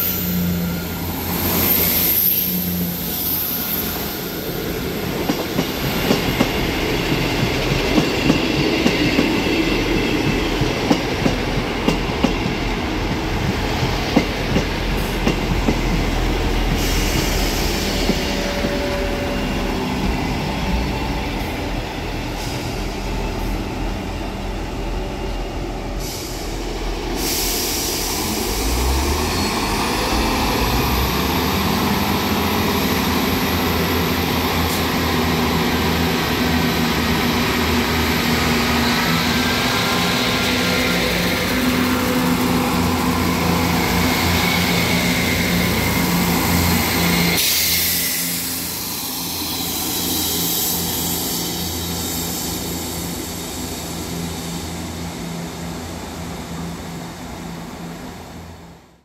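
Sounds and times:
train rumble: 0:00.0 - 0:59.0
train wheels clicking over rail joints: 0:05.0 - 0:16.1.

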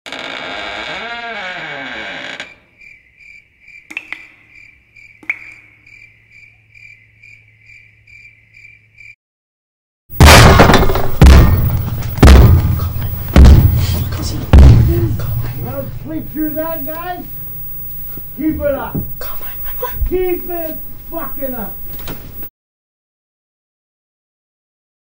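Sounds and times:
crickets chirping: 0:01.1 - 0:09.2, 0:10.8 - 0:22.5
heavy banging on floor: 0:10.2 - 0:15.6.

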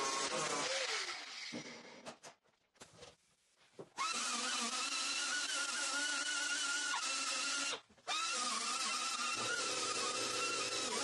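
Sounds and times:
air grinder whining: 0:08.2 - 0:11.0.

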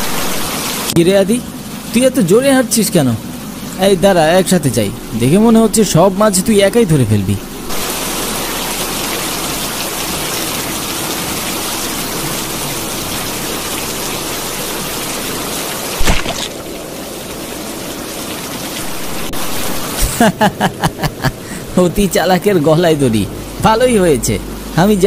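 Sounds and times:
steady rain: 0:00.0 - 0:25.0
person falling onto mud thud: 0:16.0 - 0:16.6.

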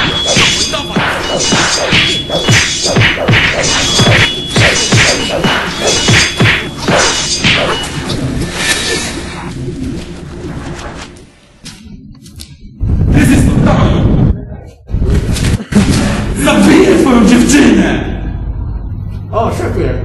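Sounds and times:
hard whacks: 0:00.0 - 0:07.8.

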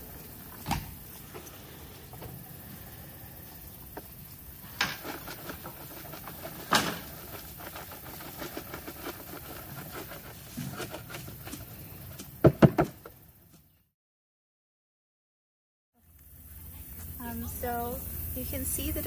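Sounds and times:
soil rustles and clicks: 0:00.0 - 0:13.7
loud knocks: 0:12.4 - 0:13.1.

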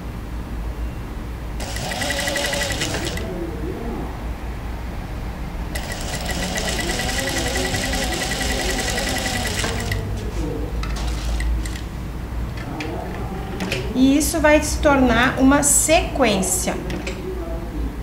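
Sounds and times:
sewing machine stitching: 0:01.6 - 0:03.3, 0:05.8 - 0:10.0.

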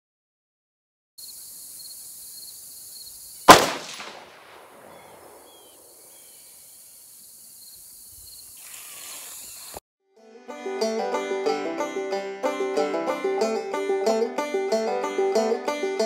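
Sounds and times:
insects buzzing: 0:01.2 - 0:09.8
rifle shot with echo: 0:03.5 - 0:06.0.

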